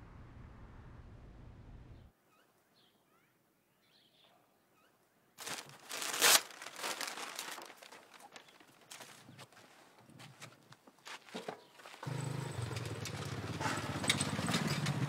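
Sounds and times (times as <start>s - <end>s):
faint bird chirps: 1.9s - 5.1s
newspaper crumpling: 5.4s - 9.8s
footsteps on dirt path: 5.4s - 12.8s.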